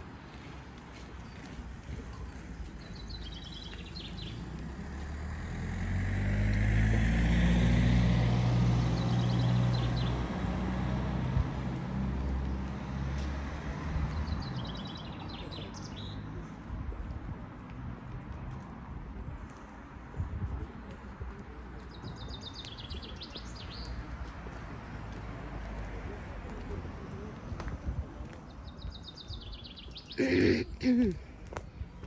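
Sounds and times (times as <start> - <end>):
car driving by: 4.6 - 11.2.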